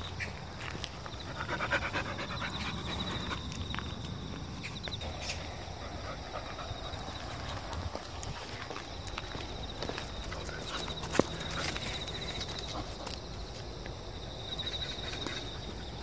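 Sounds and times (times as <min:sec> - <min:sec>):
dog panting: 0:01.2 - 0:03.6, 0:05.0 - 0:08.6.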